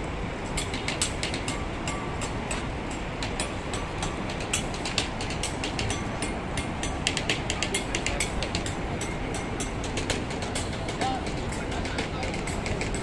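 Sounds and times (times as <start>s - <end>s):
steady low rumble: 0.0s - 13.0s
rapid irregular clicking: 6.6s - 13.0s.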